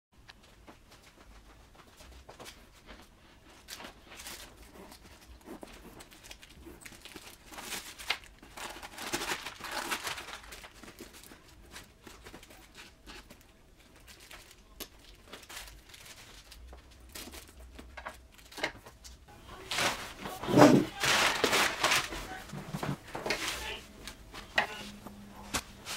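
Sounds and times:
plastic wrap and paper crinkling: 0.4 - 25.9
paper sheets shaken out: 19.5 - 23.7.

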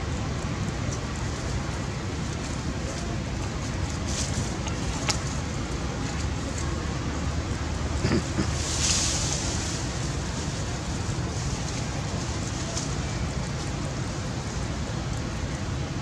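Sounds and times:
hiss: 8.0 - 11.7.

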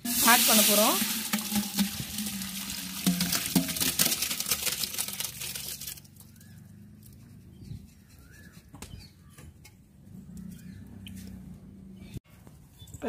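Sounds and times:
thick liquid splashing and pouring: 0.0 - 6.2.

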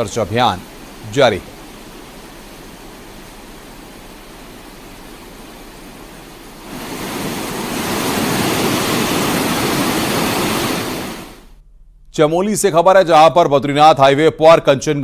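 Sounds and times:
river rushing: 0.0 - 11.5.

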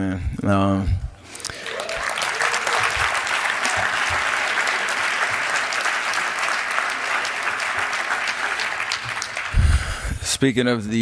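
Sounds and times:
audience applauding: 1.4 - 10.1.

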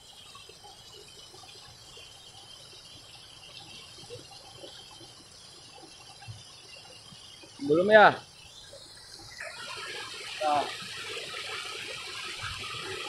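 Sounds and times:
water rushing over weir: 6.9 - 13.0.

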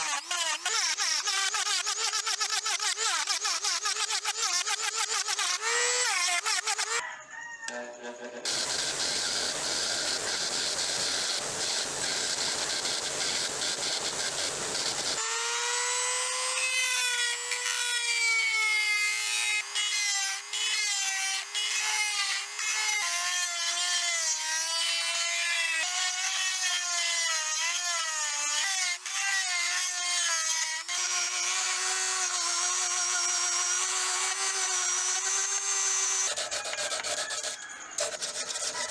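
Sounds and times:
rotary tool grinding metal: 0.0 - 7.0, 8.3 - 38.9
rotary tool motor whine: 0.0 - 7.0, 7.7 - 38.9.

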